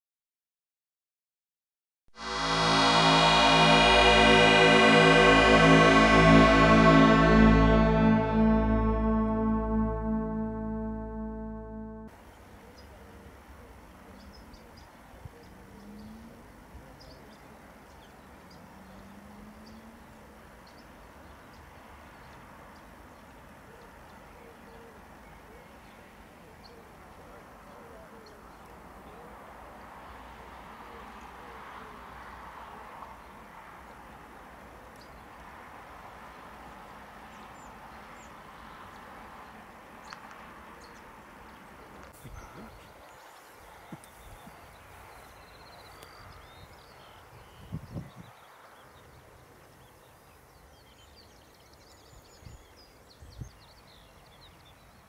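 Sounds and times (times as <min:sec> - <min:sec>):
faint low drone: 0:02.2 - 0:12.1.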